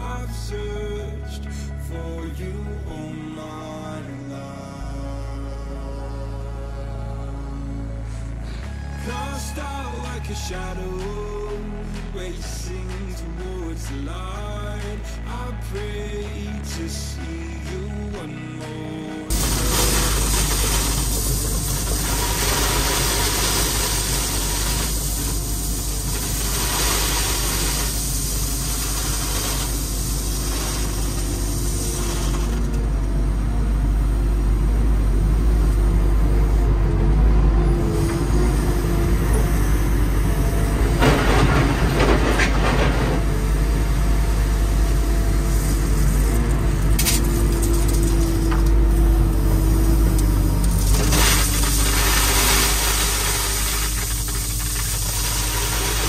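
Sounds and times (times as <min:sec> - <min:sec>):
excavator engine running: 0:00.0 - 0:56.0
crushed stone pouring: 0:19.3 - 0:33.0, 0:38.4 - 0:56.0.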